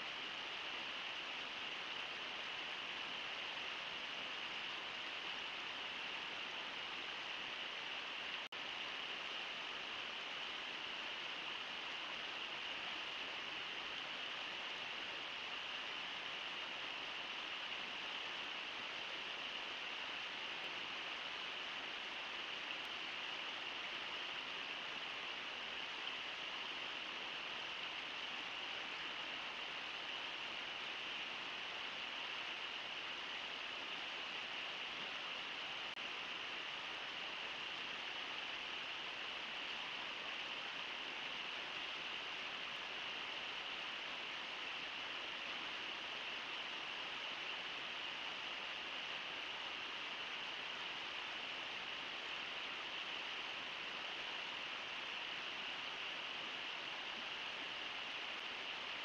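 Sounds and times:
river rushing over rocks: 0.0s - 59.0s.

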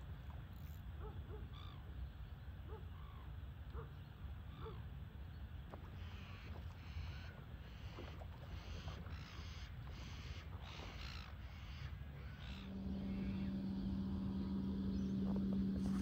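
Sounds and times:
steady low hum: 0.0s - 16.0s
seagulls squawking: 8.6s - 16.0s.

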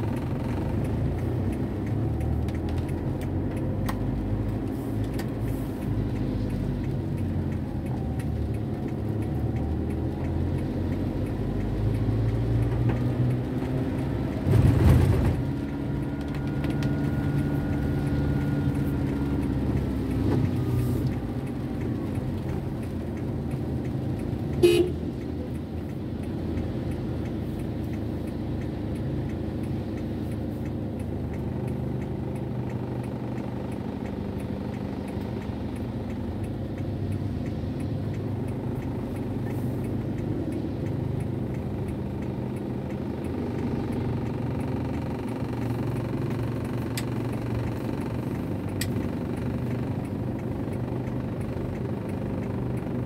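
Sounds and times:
car engine and tyres rumbling: 0.0s - 53.0s
car horn toot: 24.6s - 25.0s.

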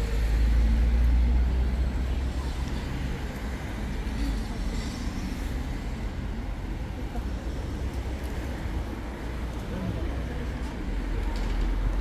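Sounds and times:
steady road noise: 0.0s - 12.0s.

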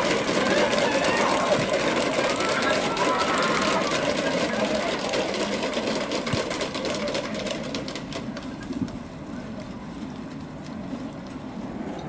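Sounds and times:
people clapping: 0.0s - 8.5s
wind rumbling: 11.3s - 12.0s.

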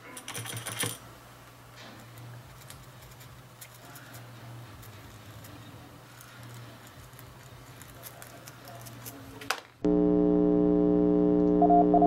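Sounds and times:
loud electronic hum: 9.8s - 12.0s
morse code tone: 9.9s - 12.0s.

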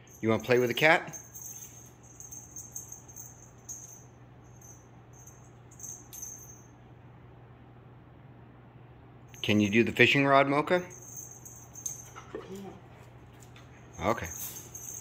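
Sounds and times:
pet collar jingling: 0.0s - 6.7s, 10.7s - 15.0s
steady low hum: 0.0s - 15.0s.

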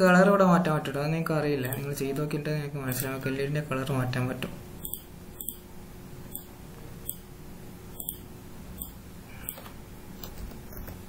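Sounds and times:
faint hum: 0.0s - 11.0s
computer mouse clicking: 4.8s - 5.6s, 8.0s - 8.2s, 8.8s - 11.0s.

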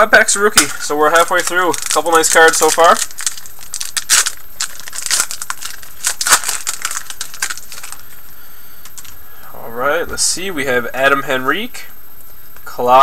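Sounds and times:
card pack wrapper crinkling: 0.5s - 8.2s, 8.8s - 9.2s.

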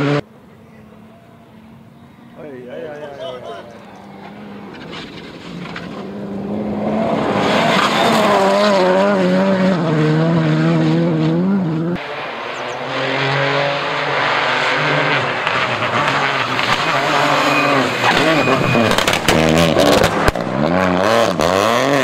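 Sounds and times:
rally car engine at full throttle: 0.0s - 0.3s, 2.5s - 22.0s
rally car approaching at speed: 0.0s - 22.0s
car on loose gravel: 2.2s - 9.6s, 14.2s - 22.0s.

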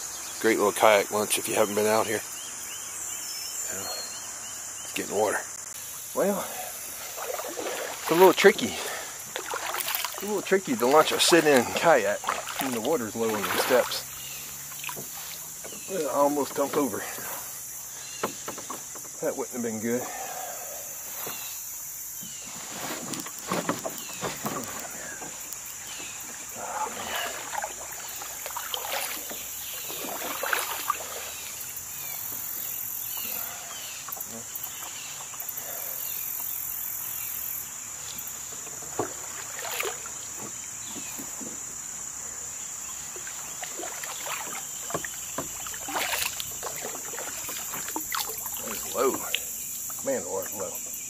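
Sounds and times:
cicadas singing: 0.0s - 51.0s
kayak paddle splashing: 5.8s - 50.7s
knock against kayak: 18.2s - 19.2s.

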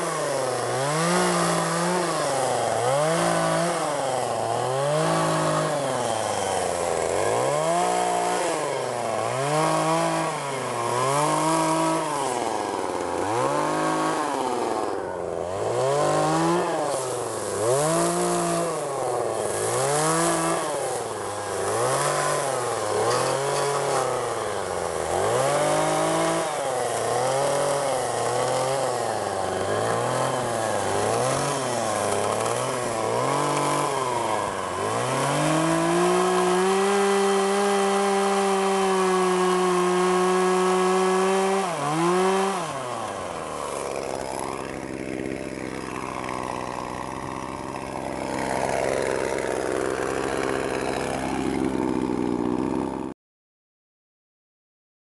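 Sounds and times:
chainsaw revving and idling: 0.0s - 53.2s.

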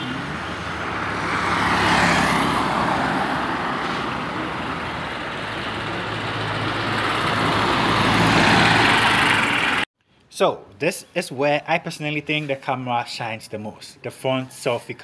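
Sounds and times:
vehicles passing close by: 0.0s - 9.9s.

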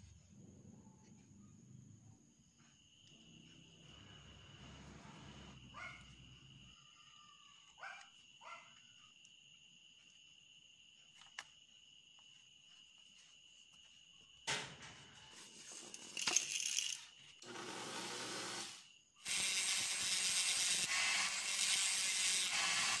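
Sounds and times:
crickets chirping: 0.0s - 17.4s, 18.7s - 23.0s
rotary grinder whirring: 17.4s - 23.0s.

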